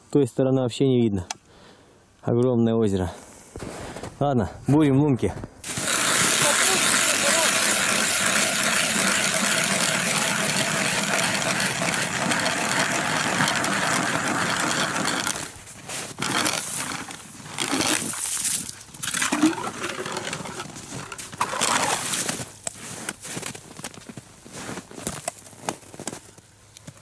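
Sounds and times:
ice auger grinding through ice: 0:05.6 - 0:23.8
auger scraping and knocking: 0:05.7 - 0:18.2, 0:19.0 - 0:23.2.

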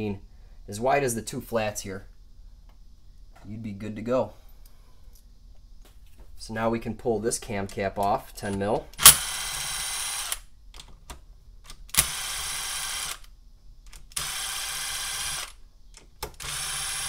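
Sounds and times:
cordless power driver spinning: 0:16.4 - 0:17.0.

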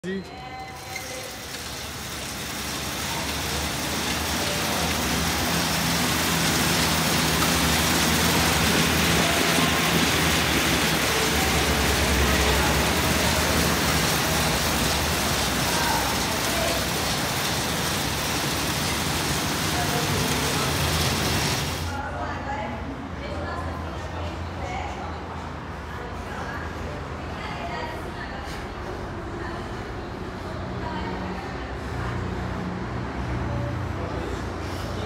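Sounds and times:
fan bikes whooshing: 0:00.8 - 0:22.0.

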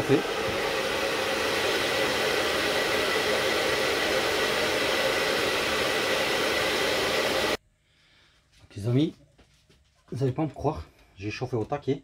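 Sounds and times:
hair dryer blowing: 0:00.0 - 0:07.6.

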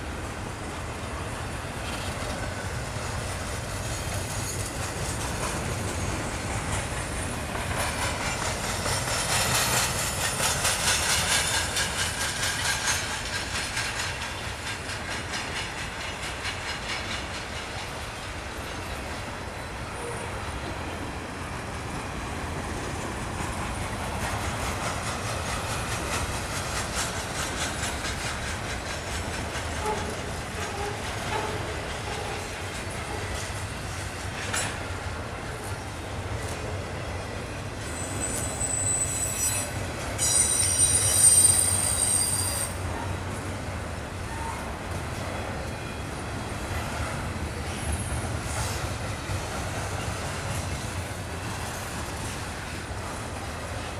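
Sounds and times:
freight train wheels clattering: 0:00.7 - 0:53.9
high-pitched wheel squeal: 0:37.9 - 0:42.8.

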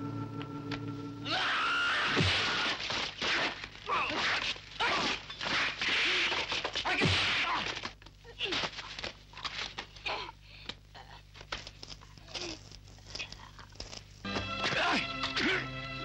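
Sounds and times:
people shouting and crying out: 0:01.2 - 0:02.8
groans: 0:10.0 - 0:13.9.

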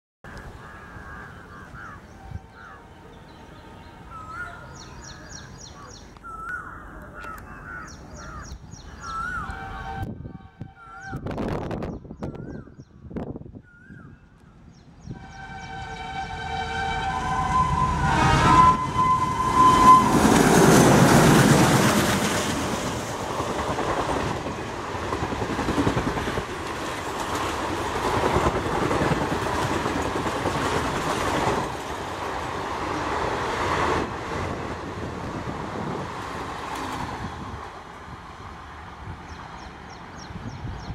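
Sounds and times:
diesel locomotives passing: 0:00.4 - 0:12.1, 0:14.3 - 0:40.9
train horn: 0:09.2 - 0:11.6, 0:15.1 - 0:21.4
wheels clacking over rail joints: 0:19.4 - 0:35.3.

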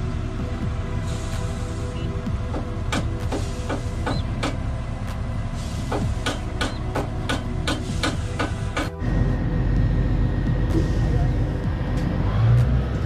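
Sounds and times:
diesel engine running: 0:00.0 - 0:13.0
hammer striking steel: 0:05.9 - 0:09.0.

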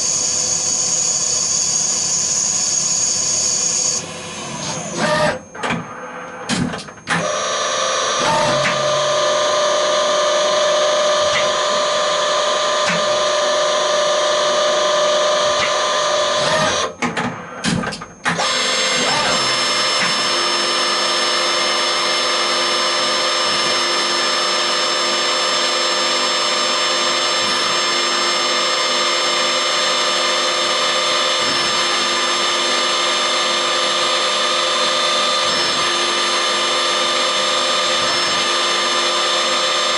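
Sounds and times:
lathe running with whine: 0:00.0 - 0:05.4, 0:07.1 - 0:16.9, 0:18.4 - 0:39.9
small drill drilling: 0:00.0 - 0:05.4, 0:07.1 - 0:16.9, 0:18.4 - 0:39.9.

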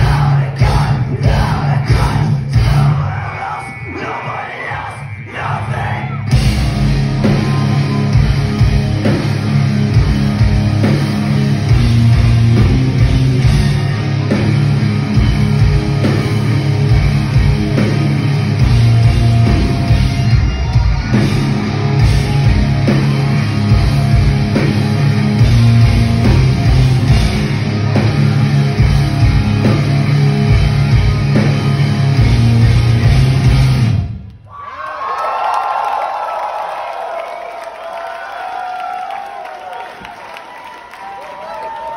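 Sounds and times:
bass guitar: 0:00.0 - 0:03.3, 0:06.0 - 0:34.3
pounding drum kit: 0:00.0 - 0:03.4, 0:05.4 - 0:34.2
distorted electric guitars: 0:00.0 - 0:34.3.

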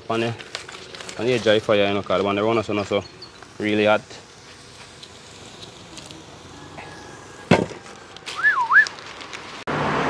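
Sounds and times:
short wavering whistle: 0:08.3 - 0:09.0.

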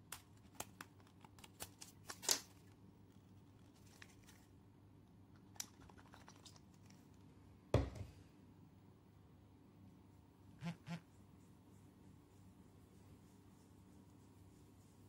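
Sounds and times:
bottle thud on table: 0:07.8 - 0:08.1.

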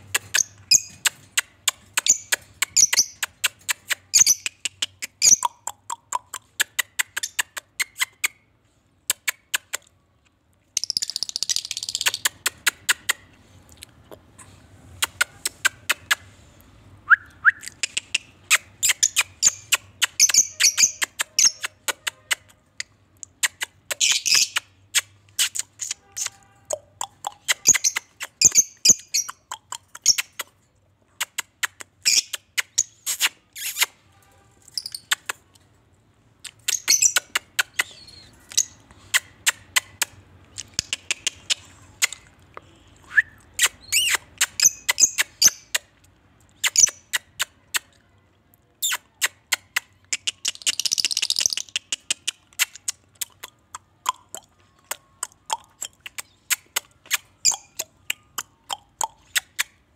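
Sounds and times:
lovebirds chirping: 0:00.2 - 0:06.4, 0:17.3 - 0:22.1, 0:23.3 - 0:30.5, 0:36.5 - 0:39.5, 0:43.8 - 0:45.8, 0:54.0 - 0:59.4.

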